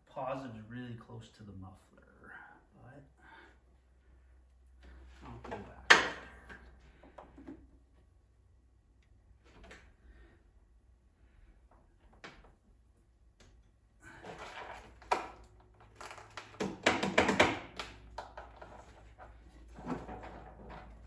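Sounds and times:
knocks and rattles of parts handled: 13.4s - 21.0s.

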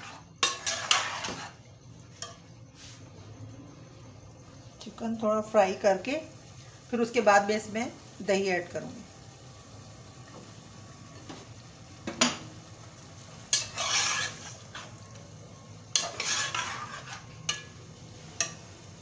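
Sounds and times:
spatula scraping cooking pot: 0.0s - 1.6s, 13.5s - 15.0s, 15.9s - 17.7s.

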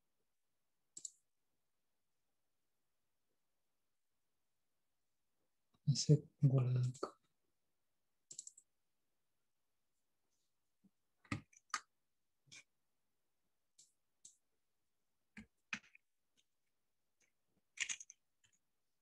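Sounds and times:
mouse and keyboard clicks: 0.9s - 1.2s, 8.3s - 8.7s, 17.7s - 18.6s.

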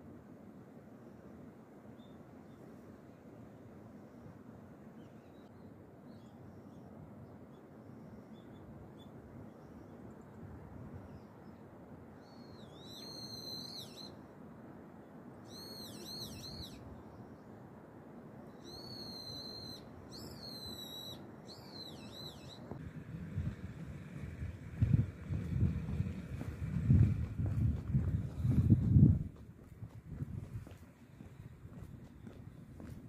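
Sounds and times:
bird whistled calls: 12.2s - 14.2s, 15.4s - 16.8s, 18.6s - 22.8s
low outdoor rush: 16.8s - 33.0s.

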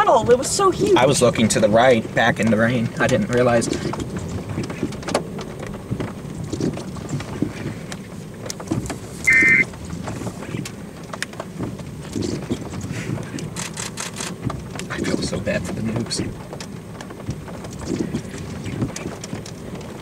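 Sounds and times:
wind rumble on microphone: 0.0s - 20.0s
high electronic beep: 9.3s - 9.6s.

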